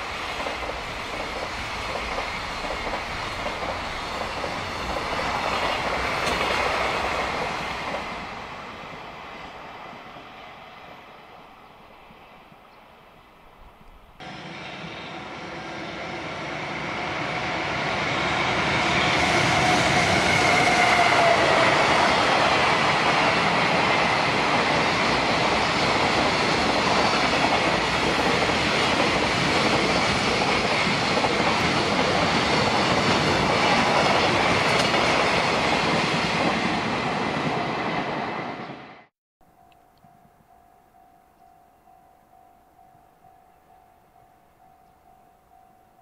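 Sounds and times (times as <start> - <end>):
freight train passing: 0.0 - 46.0
train whine falling in pitch: 14.2 - 31.8.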